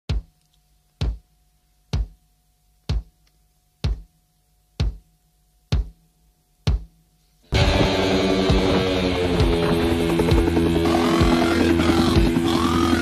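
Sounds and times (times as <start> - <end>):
slow heavy drum beat: 1.0 - 2.2, 2.9 - 3.2, 3.8 - 4.2, 4.8 - 13.0.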